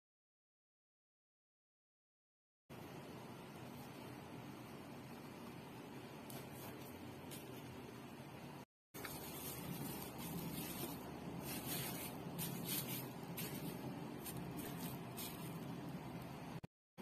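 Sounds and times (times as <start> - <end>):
plastic sheet crinkling: 9.0 - 15.9.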